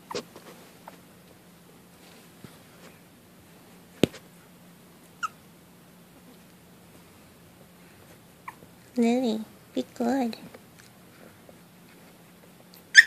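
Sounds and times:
puppy squeaking: 5.2 - 5.4.

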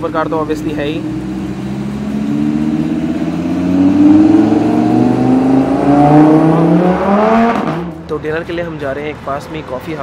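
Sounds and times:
sports car engine accelerating past: 0.4 - 8.1.

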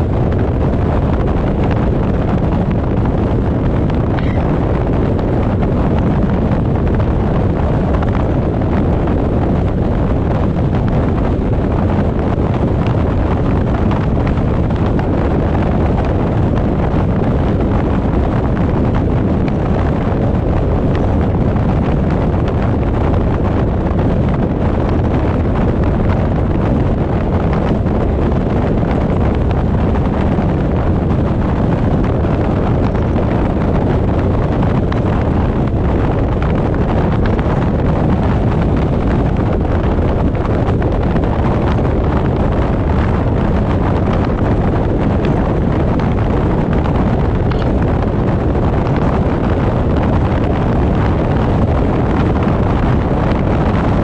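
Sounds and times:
low road rumble: 0.0 - 54.0
wind noise on microphone: 0.0 - 54.0.

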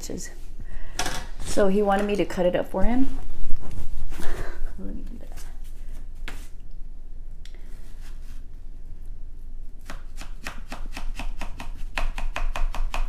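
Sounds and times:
knife slicing watermelon: 9.8 - 13.0.

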